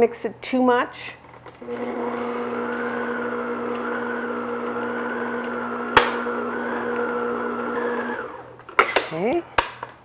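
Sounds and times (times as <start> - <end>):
stand mixer motor humming: 1.6 - 8.6.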